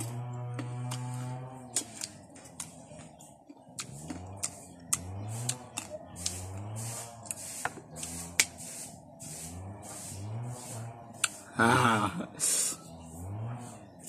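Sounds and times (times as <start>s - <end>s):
person crunching and lip-smacking: 3.7s - 6.4s
hissing breaths: 11.3s - 12.9s
person humming wordlessly: 11.5s - 12.4s.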